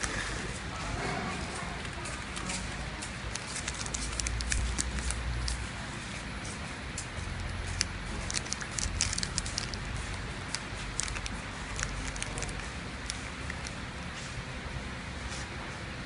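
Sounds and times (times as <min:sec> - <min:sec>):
packing machine humming: 0:00.0 - 0:16.0
plastic packets crackling: 0:01.8 - 0:05.7, 0:07.4 - 0:13.9.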